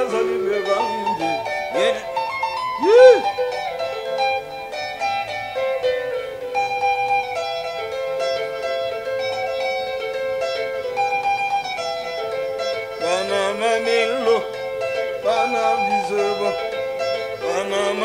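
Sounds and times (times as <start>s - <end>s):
person singing with vibrato: 0.0s - 2.2s, 2.8s - 3.3s, 13.0s - 14.6s, 15.2s - 16.8s, 17.4s - 18.0s
electric guitar solo: 0.0s - 18.0s.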